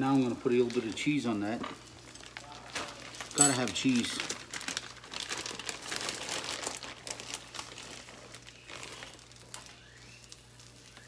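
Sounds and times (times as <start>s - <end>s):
plastic packaging crinkling: 0.0s - 11.0s.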